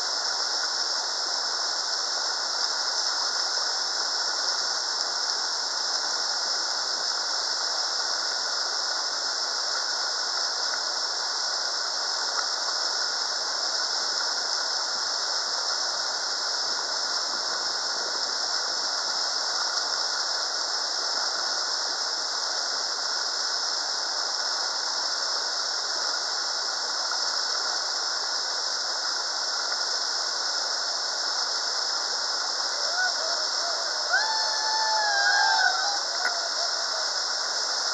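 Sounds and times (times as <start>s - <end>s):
whitewater rapids rushing: 30.4s - 37.9s.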